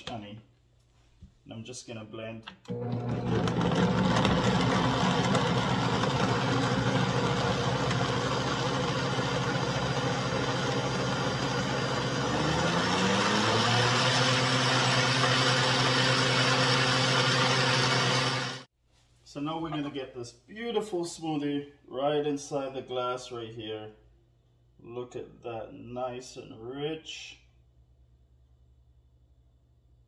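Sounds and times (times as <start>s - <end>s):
blender motor running: 2.7s - 18.7s.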